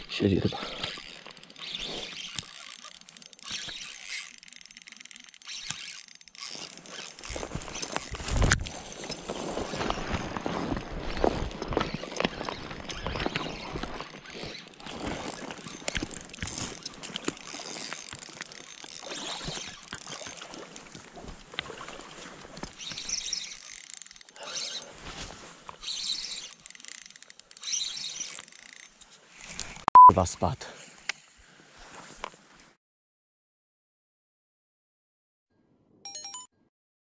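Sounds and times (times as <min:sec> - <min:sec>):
fishing reel clicking and whirring: 0:00.1 - 0:24.9, 0:25.7 - 0:29.8.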